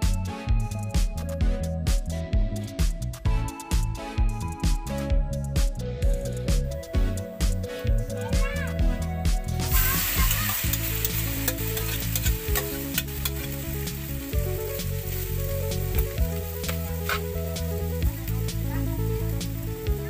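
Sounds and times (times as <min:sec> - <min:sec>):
coconut sizzling in a wok: 0:09.6 - 0:20.0
metal spatula scraping a wok: 0:09.7 - 0:13.7, 0:16.7 - 0:17.3.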